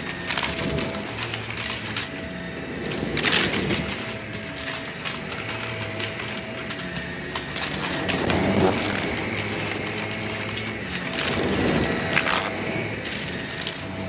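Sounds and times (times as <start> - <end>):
seashells rattling in vacuum: 0.0 - 14.0
stick vacuum motor hum: 0.0 - 14.0.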